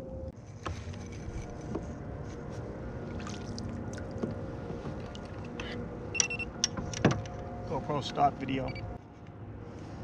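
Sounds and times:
water around kayak hull: 3.0 - 5.2.

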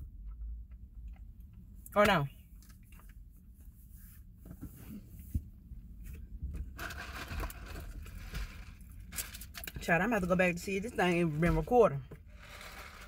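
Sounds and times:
food packaging scraping and rustling: 6.7 - 9.8, 11.2 - 13.0.

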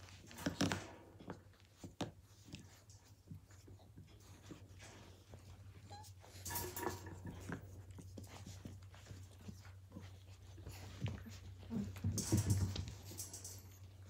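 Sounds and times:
puppies scuffling: 0.0 - 14.0.

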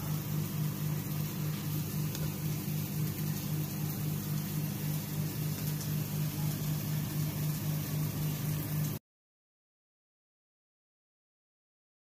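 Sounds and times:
pulsing mechanical hum: 0.0 - 9.0.

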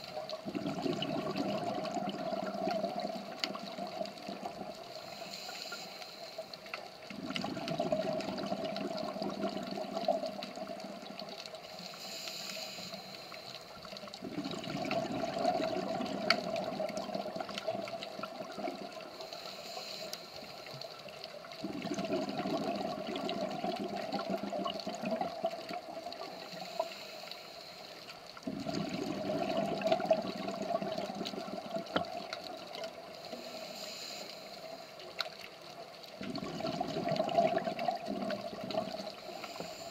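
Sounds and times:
bubbly exhaled air gush: 0.0 - 5.8, 7.1 - 11.4, 14.0 - 20.0, 21.6 - 27.0, 28.4 - 34.7, 36.2 - 39.9
faint sharp clicks: 4.8 - 7.2, 19.0 - 21.6, 31.9 - 36.2
regulator inhalation hiss: 4.9 - 6.8, 11.5 - 14.0, 18.9 - 21.0, 26.2 - 28.1, 33.1 - 35.1, 39.0 - 39.9.

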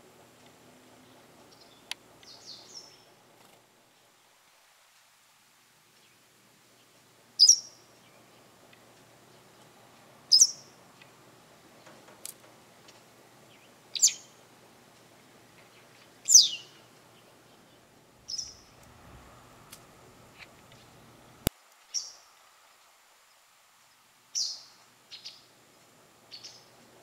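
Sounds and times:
bird chirping: 1.0 - 3.2, 6.0 - 8.6, 10.3 - 10.8, 13.4 - 14.4, 15.6 - 18.8, 21.9 - 22.3, 24.3 - 25.5, 26.3 - 26.8.

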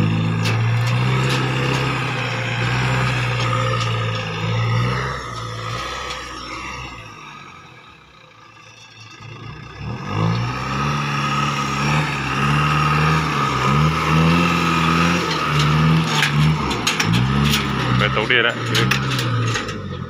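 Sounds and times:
truck diesel engine revving: 0.0 - 20.0.

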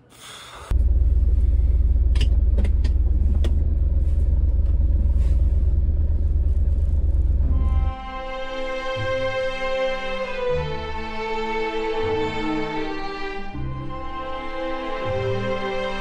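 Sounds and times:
car engine rumbling inside cabin: 0.7 - 8.3.

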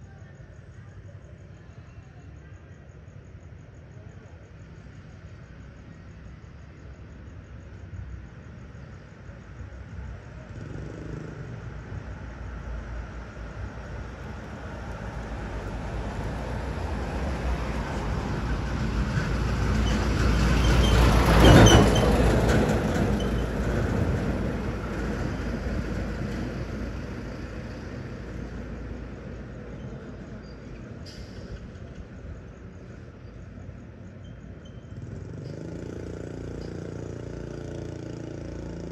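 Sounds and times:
vehicle passing by: 35.0 - 38.9.

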